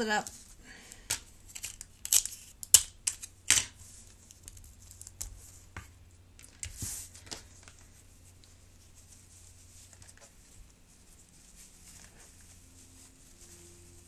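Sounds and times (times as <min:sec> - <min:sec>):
tape ripping from dispenser: 0:01.5 - 0:03.8
paper rustle: 0:03.1 - 0:14.0.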